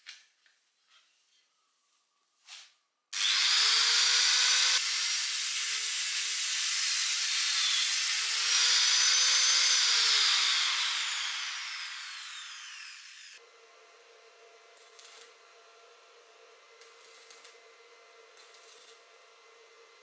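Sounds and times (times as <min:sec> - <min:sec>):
angle grinder cutting steel: 0:03.2 - 0:13.4, 0:18.4 - 0:19.1.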